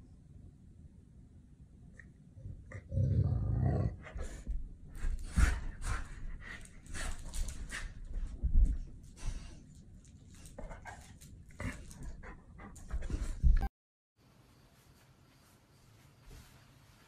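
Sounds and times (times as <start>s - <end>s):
dogs growling in play: 2.6s - 4.5s.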